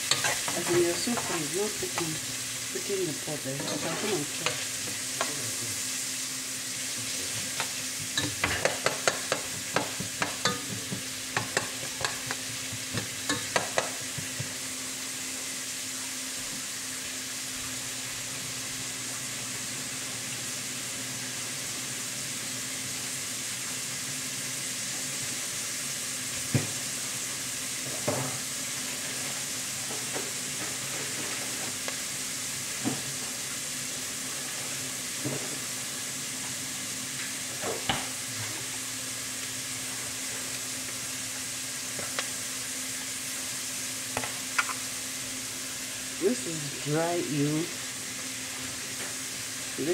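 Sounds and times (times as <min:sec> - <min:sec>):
onions sizzling in oil: 0:00.0 - 0:49.9
stirring clicks and taps in pot: 0:07.6 - 0:14.5, 0:42.0 - 0:42.3.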